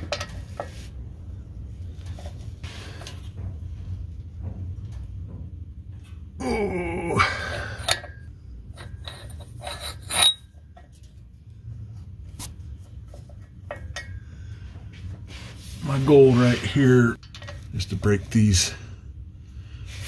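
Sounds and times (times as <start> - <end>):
low steady hum: 0.0 - 20.0
man groaning: 6.4 - 7.8.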